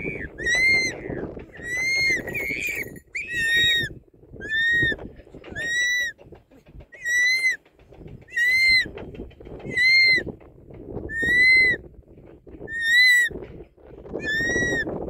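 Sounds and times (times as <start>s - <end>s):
eagle whistled call: 1.6s - 5.0s, 7.0s - 7.6s, 11.1s - 11.8s, 14.2s - 14.9s.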